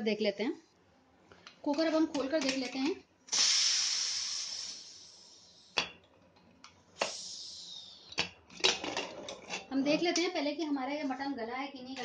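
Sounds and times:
steam hissing from pressure cooker: 0:03.3 - 0:05.8, 0:07.0 - 0:08.1.

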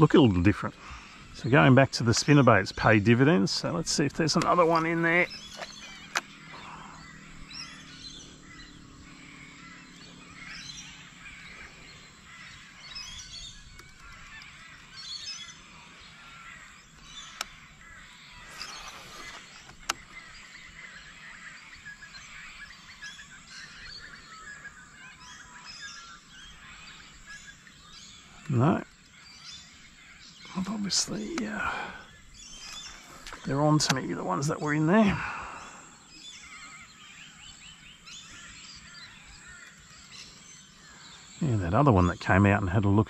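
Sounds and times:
birds calling and chirping: 0:00.0 - 0:43.0
sharp clicks: 0:05.5 - 0:06.3.

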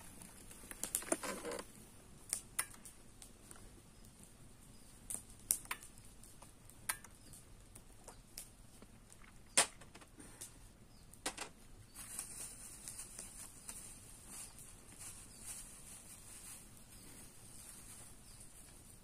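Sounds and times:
items clicking and knocking: 0:00.2 - 0:01.6, 0:11.2 - 0:11.6.

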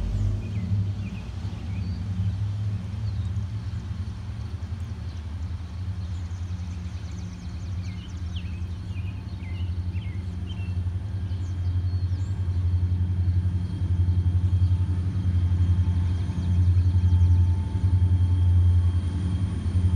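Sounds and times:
diesel locomotive rumble: 0:00.0 - 0:19.9
birds chirping: 0:03.0 - 0:17.6.

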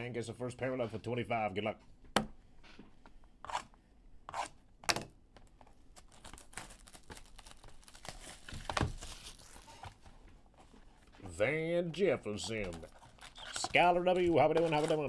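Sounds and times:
foil wrappers tearing and crinkling: 0:06.0 - 0:10.0, 0:12.4 - 0:15.0.

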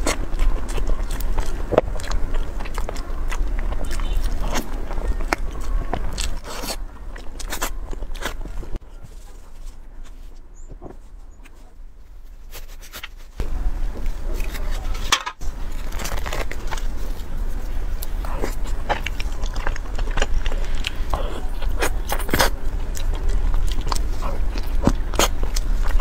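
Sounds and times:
biting and chewing: 0:00.0 - 0:26.0
steady low hum: 0:00.0 - 0:26.0.

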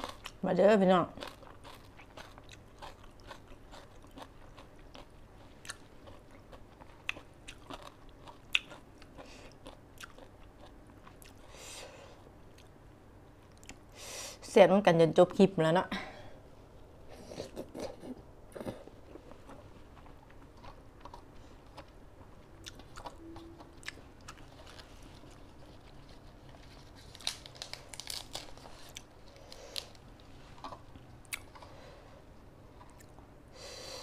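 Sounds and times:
person chewing and crunching: 0:00.0 - 0:00.4, 0:01.1 - 0:11.5, 0:17.2 - 0:31.8.

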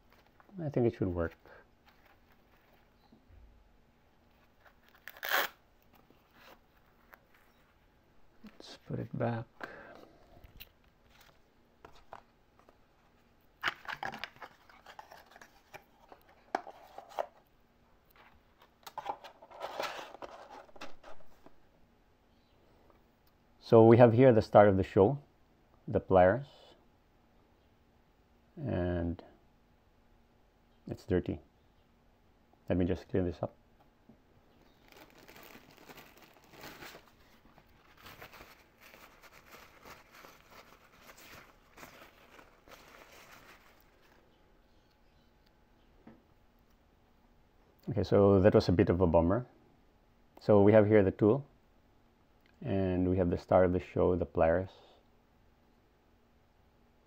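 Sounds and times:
cardboard rustling and scraping: 0:19.0 - 0:21.5, 0:34.8 - 0:44.2.

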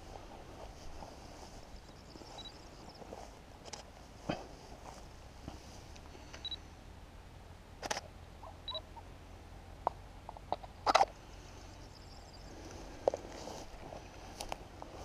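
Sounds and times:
faint high beeps: 0:01.9 - 0:03.0, 0:06.4 - 0:06.7, 0:08.6 - 0:08.9.

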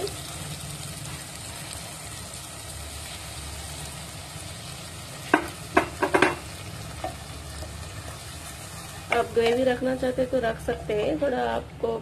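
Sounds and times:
food sizzling in a pan: 0:00.0 - 0:11.6.

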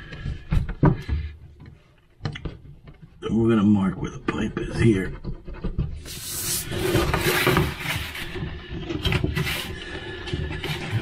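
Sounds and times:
rustling handling noise: 0:05.2 - 0:11.0.

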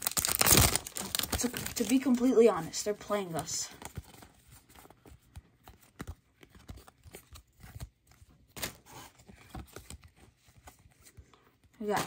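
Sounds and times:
pack wrapper tearing: 0:00.0 - 0:02.4
cardboard cards clicking and rustling: 0:00.0 - 0:12.0.

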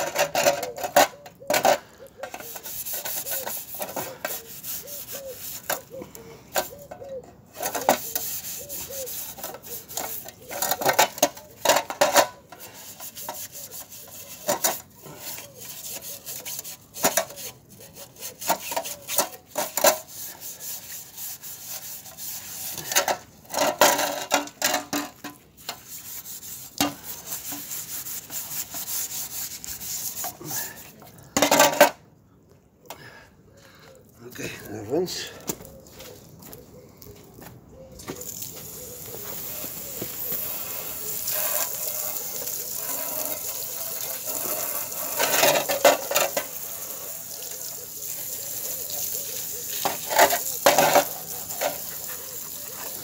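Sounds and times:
steel wool scouring sheet metal: 0:02.3 - 0:05.9, 0:11.8 - 0:30.9, 0:39.1 - 0:47.6.

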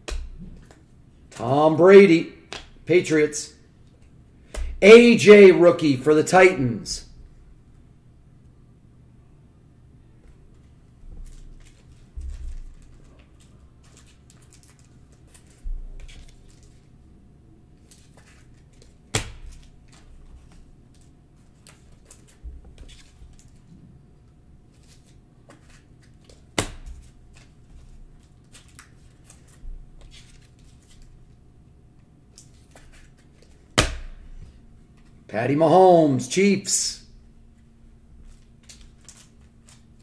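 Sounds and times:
plastic wrapper crinkling: 0:11.2 - 0:16.8.

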